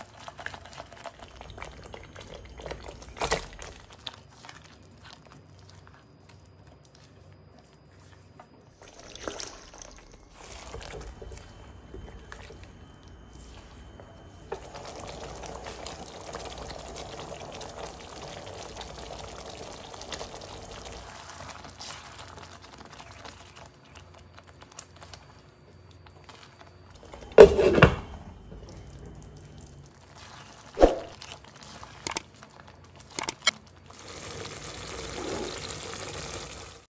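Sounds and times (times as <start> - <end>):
spatula stirring bubbling sauce: 10.3 - 27.2.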